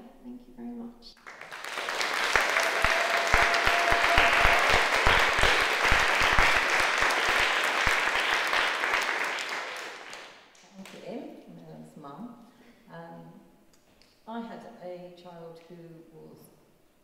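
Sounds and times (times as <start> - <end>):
audience applauding: 1.2 - 11.0.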